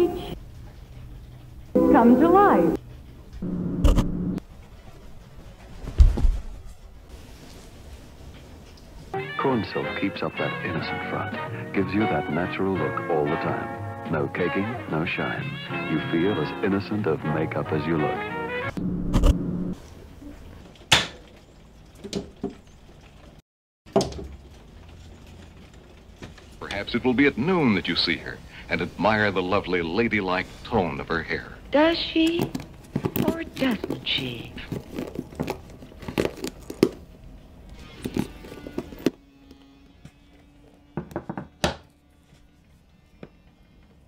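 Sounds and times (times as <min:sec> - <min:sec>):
quiet background music: 0:00.0 - 0:18.8, 0:24.3 - 0:44.0
knocks on wooden table: 0:41.0 - 0:41.8.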